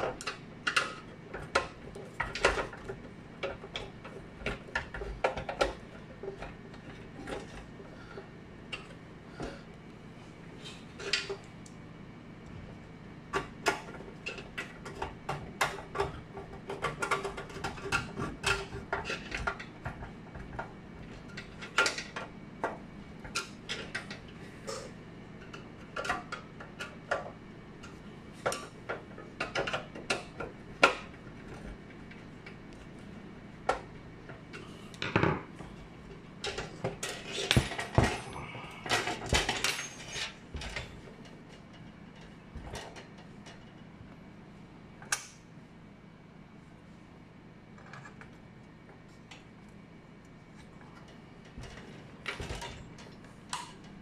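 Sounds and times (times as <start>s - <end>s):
metal parts clicking and clinking: 38.9s - 40.9s.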